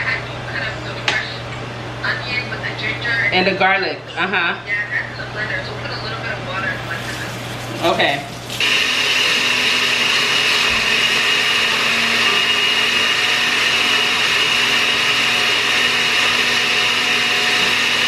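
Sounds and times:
blender whirring: 6.8 - 18.0.

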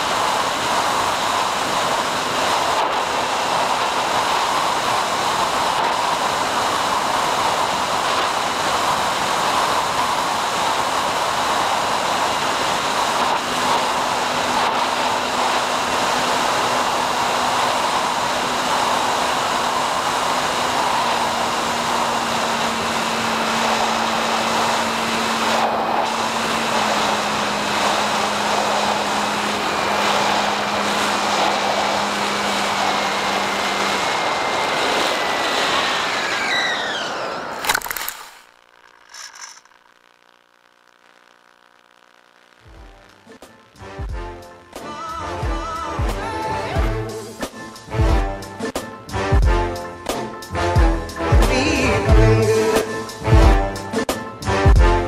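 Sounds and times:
wind rush: 0.0 - 37.6
electric motor and propeller hum: 0.0 - 44.8.

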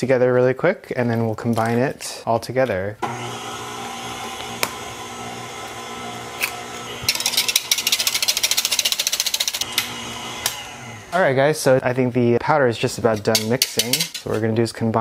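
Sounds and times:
stand mixer motor running: 3.0 - 11.1
egg cracking: 6.3 - 10.6
whisk clicking in plastic jug: 7.1 - 9.6.

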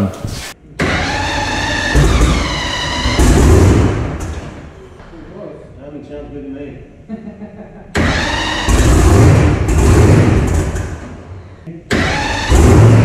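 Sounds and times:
engine rumbling: 0.7 - 13.0
starter whine: 8.0 - 11.2, 11.9 - 13.0.

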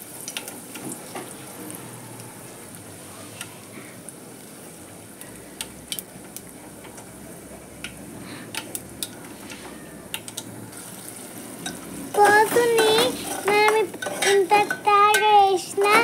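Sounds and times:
hot oil sizzling: 0.0 - 16.0
sharp pops and crackles: 5.2 - 7.1.

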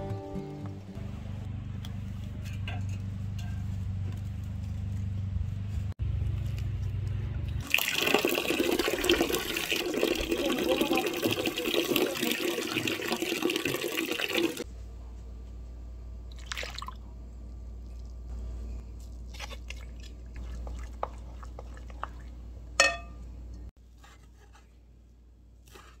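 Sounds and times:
low steady hum: 0.0 - 26.0
water running from a tap: 7.6 - 14.6.

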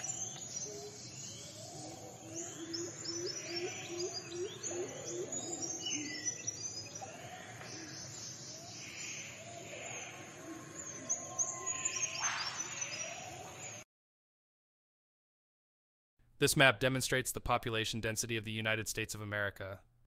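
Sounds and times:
background noise: 0.0 - 13.8, 16.2 - 20.0
birds chirping and whistling: 0.0 - 13.8.

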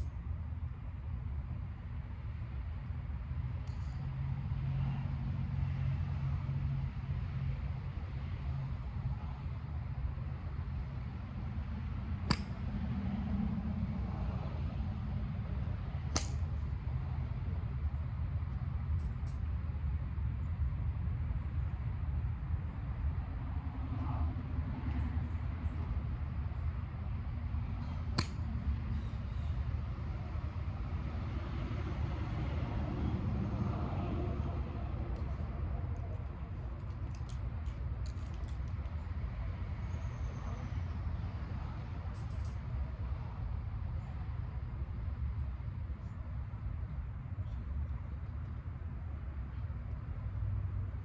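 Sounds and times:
wind rumble on microphone: 1.4 - 51.0
golf club striking ball: 12.2 - 12.6, 28.1 - 28.5.

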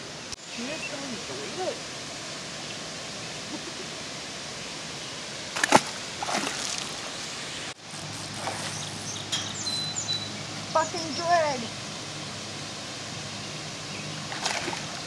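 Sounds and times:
steady background hiss: 0.0 - 15.0
fish splashing into water: 5.5 - 7.1, 14.3 - 15.0.

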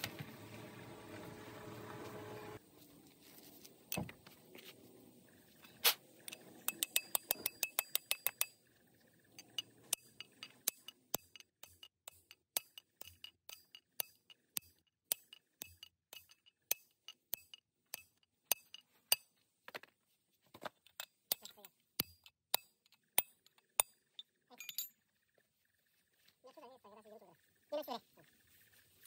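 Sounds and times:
hammer striking steel drift: 9.4 - 19.3.

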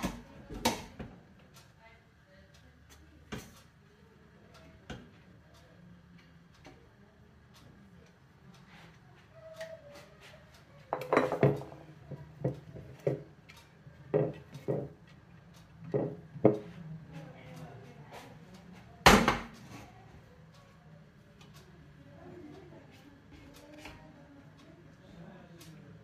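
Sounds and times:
ceramic plate and utensils clinking: 11.0 - 11.7.

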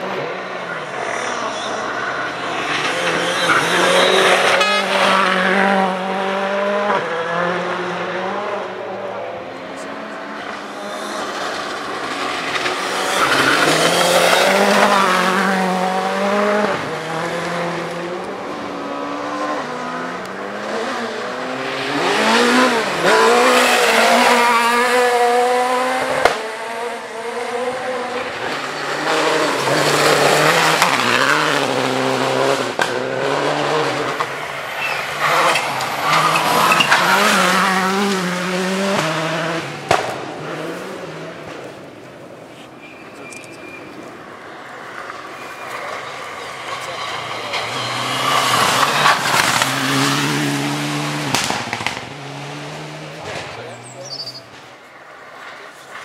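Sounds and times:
rally car engines revving: 0.0 - 56.0
sharp crack: 39.8 - 40.3, 51.2 - 52.2.

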